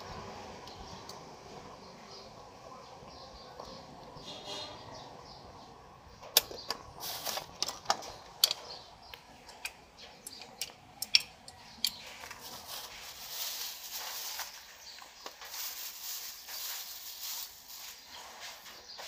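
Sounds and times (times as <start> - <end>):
metallic clicks of brake hardware: 9.5 - 12.0.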